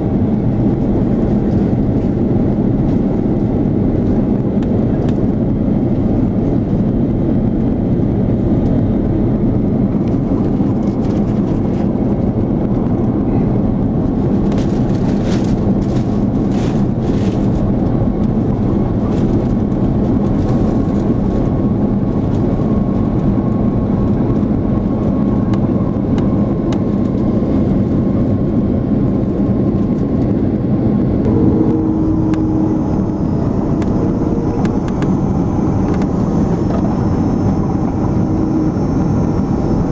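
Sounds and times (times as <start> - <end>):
airliner cabin engine hum and airflow: 0.0 - 39.9
faint higher hum: 30.4 - 39.9.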